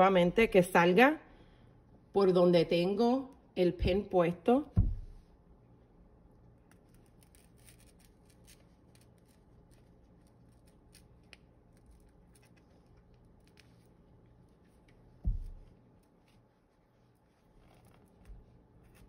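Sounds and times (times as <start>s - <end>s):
low thump: 4.7s - 5.2s, 15.2s - 15.7s.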